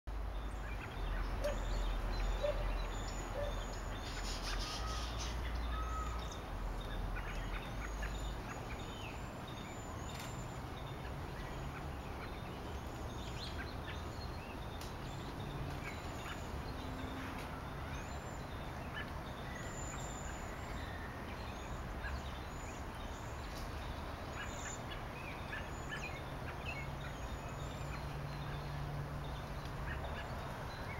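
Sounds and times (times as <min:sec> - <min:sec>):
robins calling and singing: 0:00.1 - 0:30.9
thin high-pitched bird calls: 0:00.8 - 0:10.6.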